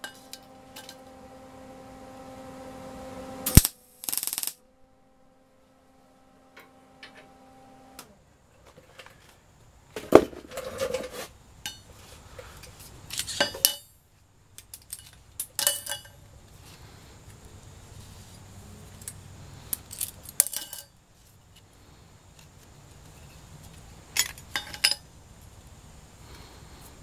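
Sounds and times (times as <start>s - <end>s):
metal parts clanking on steel plate: 13.1s - 13.9s, 14.7s - 16.2s, 19.9s - 20.9s, 24.2s - 25.0s.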